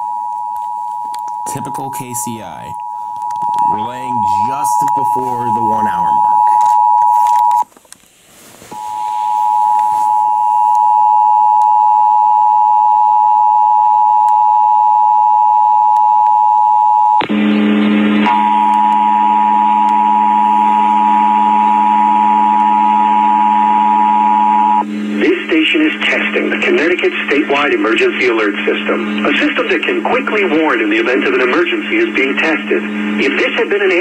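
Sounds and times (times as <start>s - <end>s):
low buzzing hum: 0.0s - 33.4s
two-tone alert signal: 1.4s - 7.6s
radio static burst: 1.5s - 2.8s, 3.4s - 7.6s.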